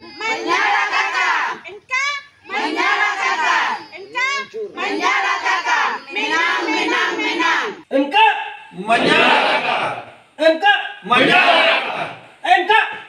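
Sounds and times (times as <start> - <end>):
shrill wavering cry: 0.0 - 7.8
crowd shouting and cheering: 0.0 - 10.0.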